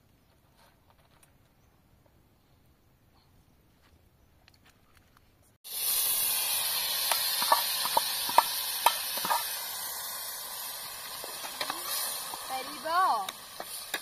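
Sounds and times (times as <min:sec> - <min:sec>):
food sizzling in hot oil: 0:05.6 - 0:14.0
oil popping and crackling: 0:05.7 - 0:14.0.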